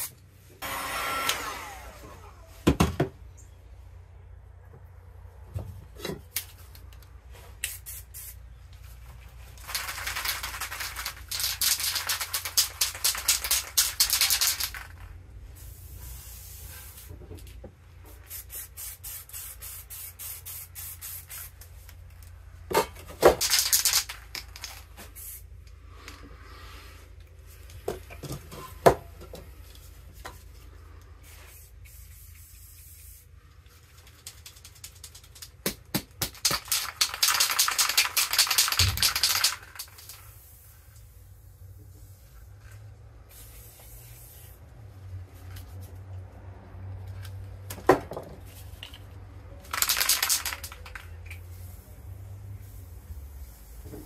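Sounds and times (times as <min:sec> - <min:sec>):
spray can ball rattling: 0:07.6 - 0:08.4, 0:09.4 - 0:17.1, 0:18.2 - 0:22.2, 0:23.2 - 0:25.5, 0:33.8 - 0:40.7, 0:48.5 - 0:53.8
spray paint hissing: 0:07.6 - 0:08.5, 0:09.6 - 0:17.1, 0:18.1 - 0:21.9, 0:25.0 - 0:25.6, 0:31.2 - 0:33.3, 0:36.3 - 0:42.5, 0:43.3 - 0:44.6, 0:49.7 - 0:53.9.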